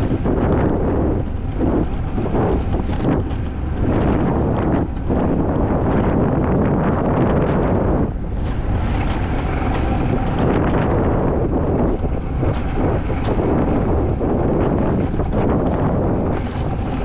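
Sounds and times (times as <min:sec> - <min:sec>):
coaster sled rumbling on rail: 0:00.0 - 0:17.0
wind buffeting microphone: 0:00.0 - 0:17.0
clicks and rattles: 0:08.3 - 0:17.0.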